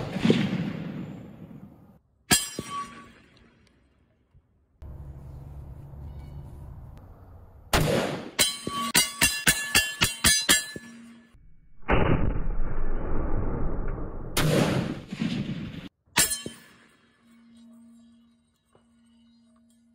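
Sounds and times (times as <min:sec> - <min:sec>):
rifle shots: 0:07.7 - 0:08.4, 0:14.3 - 0:15.9.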